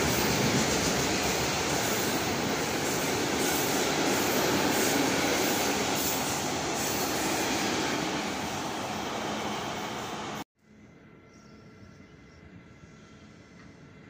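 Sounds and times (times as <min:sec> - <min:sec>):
train wheels on rail: 0:00.0 - 0:10.4.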